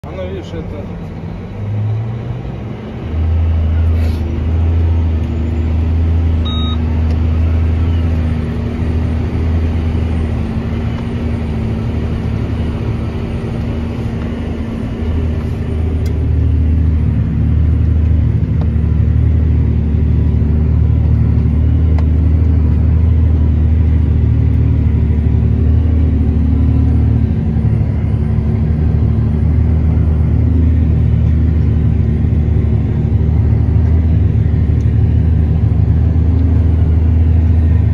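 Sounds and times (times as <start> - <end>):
tractor diesel engine droning: 0.0 - 37.9.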